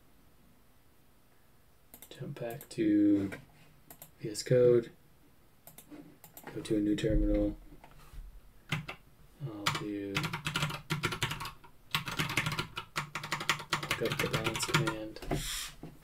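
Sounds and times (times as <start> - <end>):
computer keyboard typing: 8.7 - 9.0, 9.6 - 15.1.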